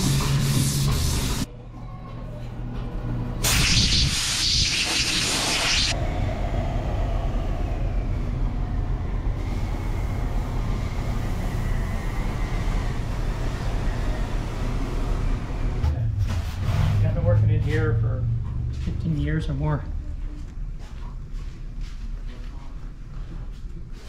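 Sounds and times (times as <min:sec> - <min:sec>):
steady low rumble: 0:05.9 - 0:12.1, 0:15.2 - 0:23.4.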